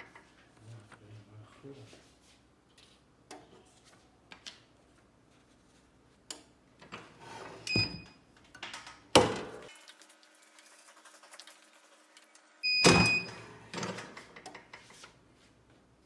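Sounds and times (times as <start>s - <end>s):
heat press beep: 7.7s - 8.1s, 12.2s - 13.4s.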